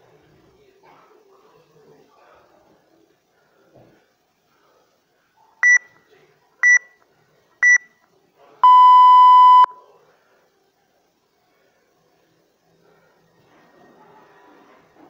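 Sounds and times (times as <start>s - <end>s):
long low timer beep: 8.6s - 9.8s.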